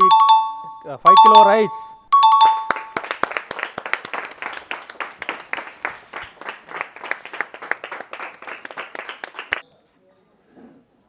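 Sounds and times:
people applauding: 2.4s - 9.6s.

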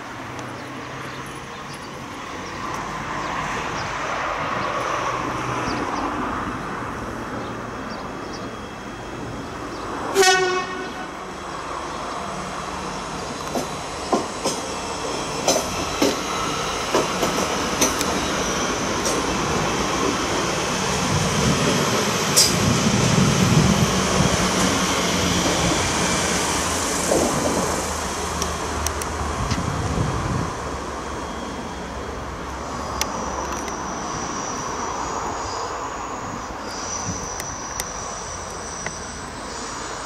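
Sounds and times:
train rumble: 0.0s - 40.0s
wheels clicking over rail joints: 15.4s - 18.4s.

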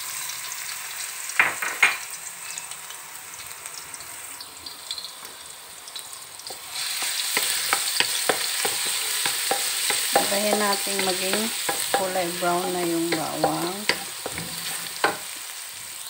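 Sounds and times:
garlic sizzling in oil: 0.0s - 16.0s
spatula scraping and tapping pan: 6.9s - 15.4s.

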